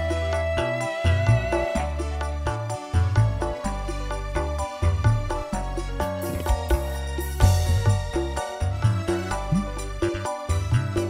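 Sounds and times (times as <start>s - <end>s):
electronic keyboard melody: 0.0s - 11.0s
heavy bass: 4.4s - 11.0s
hand drum strikes: 9.5s - 10.4s.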